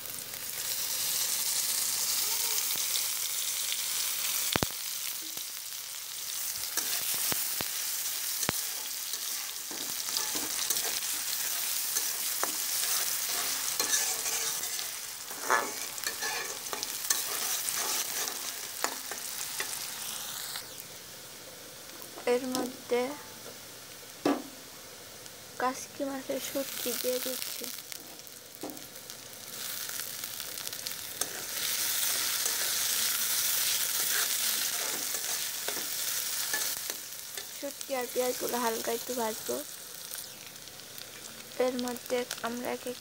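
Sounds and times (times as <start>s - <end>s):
onions sizzling in hot oil: 0.0s - 43.0s
spatula scraping a wok: 6.3s - 20.0s, 29.6s - 37.6s.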